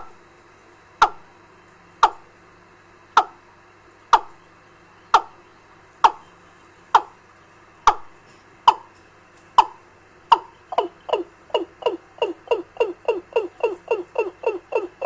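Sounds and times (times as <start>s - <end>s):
recorded bird call: 3.1s - 3.5s, 4.1s - 15.0s.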